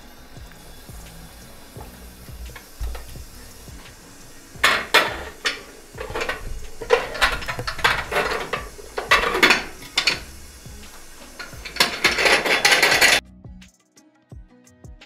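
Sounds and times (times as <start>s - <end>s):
kitchenware clattering: 2.5s - 13.2s.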